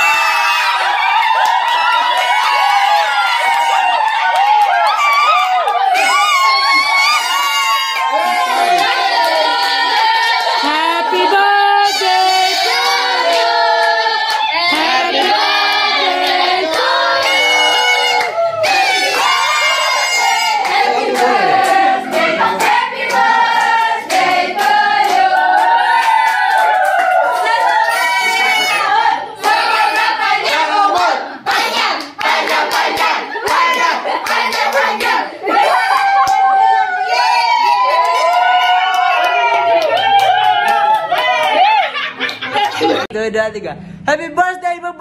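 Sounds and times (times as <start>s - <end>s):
group of voices singing: 8.0s - 36.0s.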